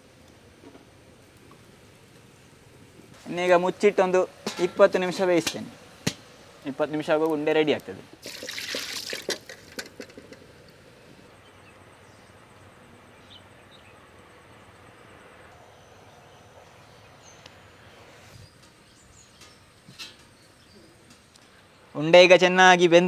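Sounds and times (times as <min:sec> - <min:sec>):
faint steady hiss: 0:00.0 - 0:23.0.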